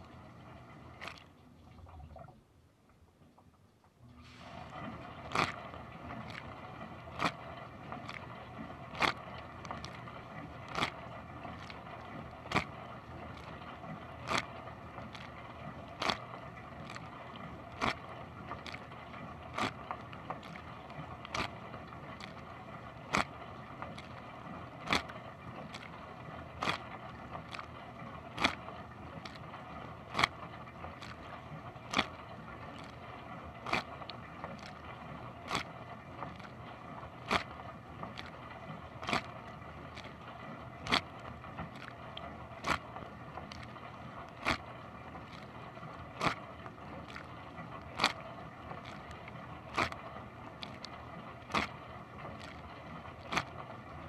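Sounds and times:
dishwasher pump and spraying water: 4.1s - 41.9s
water jet splashing: 4.2s - 54.0s.

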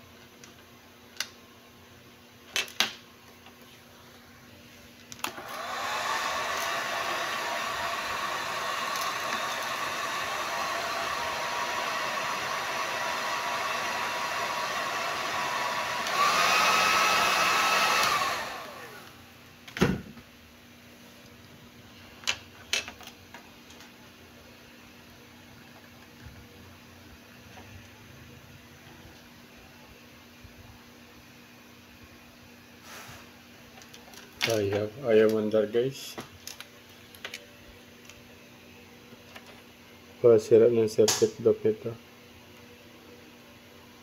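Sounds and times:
hair dryer blowing: 5.3s - 19.3s.

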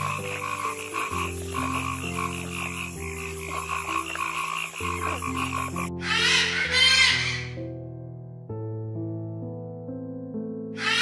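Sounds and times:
frogs croaking in chorus: 0.0s - 7.6s, 10.8s - 11.0s
slow sustained music chords: 0.0s - 10.1s.

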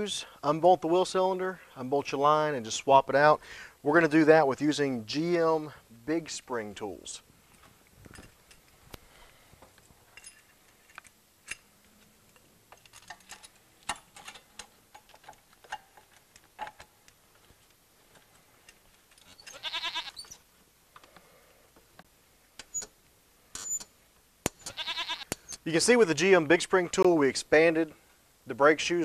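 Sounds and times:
light metallic clicks and clinks: 7.5s - 8.9s, 9.7s - 19.3s.

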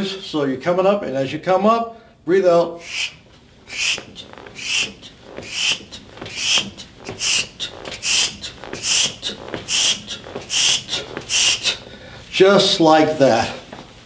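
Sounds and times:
man's hissing exhalations: 2.8s - 12.3s.

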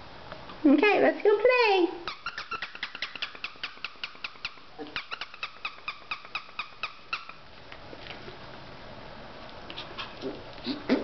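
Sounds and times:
squeaky toy squeaking: 2.1s - 7.4s.

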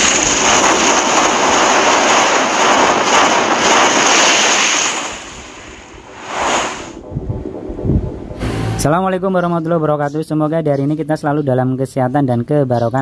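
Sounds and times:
whoosh sound effect: 6.1s - 8.9s.

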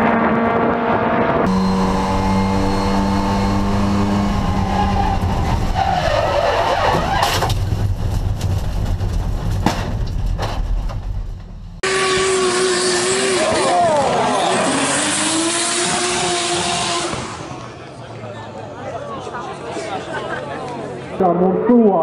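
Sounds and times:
race car engine at high revs: 0.0s - 6.0s, 11.8s - 17.8s
tyres skidding: 1.5s - 18.4s.

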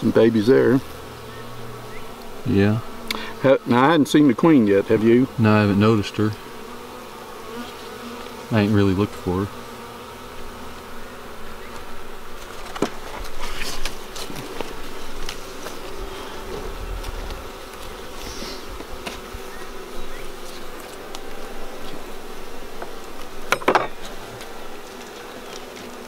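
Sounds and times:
honeybees buzzing: 0.0s - 26.0s
wooden frames knocking: 22.8s - 24.1s.

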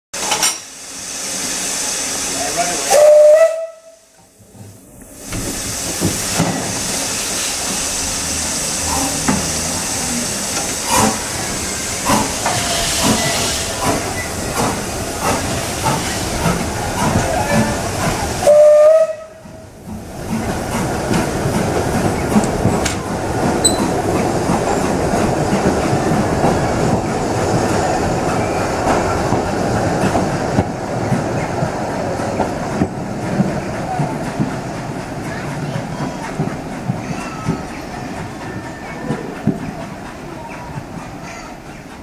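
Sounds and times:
steam locomotive hissing: 0.2s - 42.0s
steam whistle blasts: 2.9s - 4.1s, 18.4s - 19.4s
slow exhaust beats and knocks: 8.9s - 9.8s, 12.0s - 18.2s, 28.8s - 38.3s, 39.0s - 40.0s.

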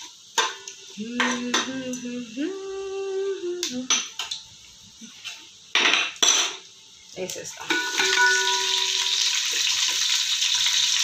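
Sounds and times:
metal spoon clinking on pot: 7.7s - 9.3s.

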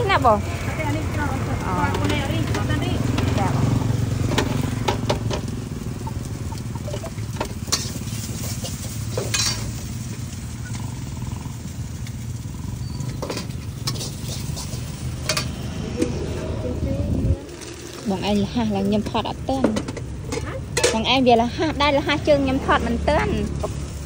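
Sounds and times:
food sizzling in a wok: 0.0s - 24.0s
metal spatula scraping a pan: 6.9s - 9.8s, 12.8s - 15.6s.

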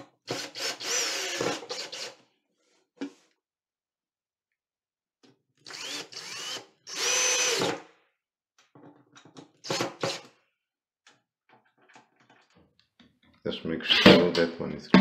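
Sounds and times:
cordless drill whining: 0.3s - 2.2s, 5.6s - 7.8s.

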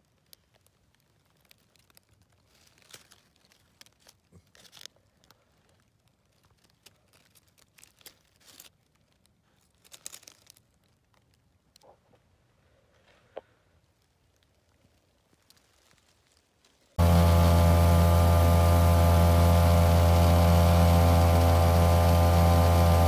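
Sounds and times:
dry leaves rustling: 0.0s - 11.4s, 14.0s - 23.0s.

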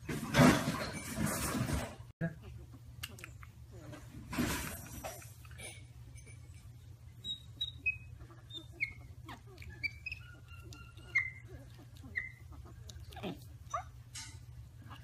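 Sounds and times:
low steady hum: 0.1s - 15.0s
baby monkeys chirping: 7.2s - 13.9s.

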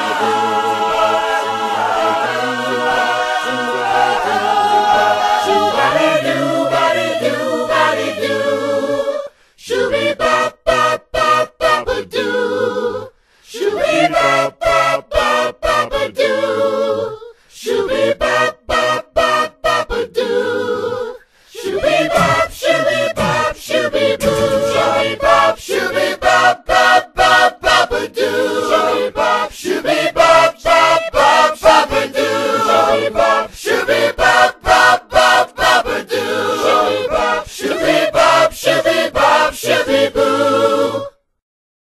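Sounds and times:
a cappella group singing: 0.0s - 41.3s.

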